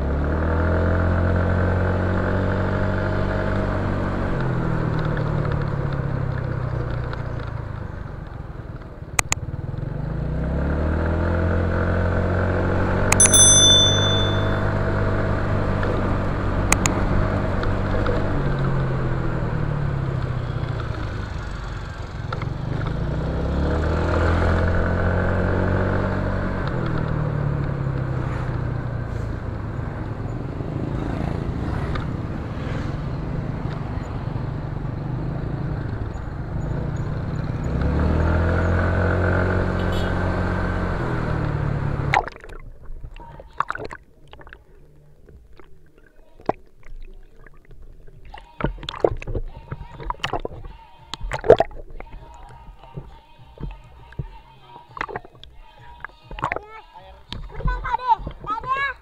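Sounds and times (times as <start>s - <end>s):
wind and road noise: 0.0s - 46.0s
underwater clicks and knocks: 48.6s - 54.3s, 55.0s - 56.6s.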